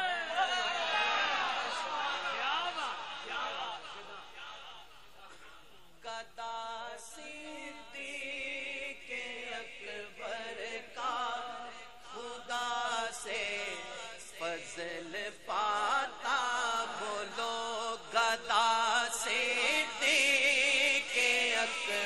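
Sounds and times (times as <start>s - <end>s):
man singing into a microphone: 6.0s - 22.0s.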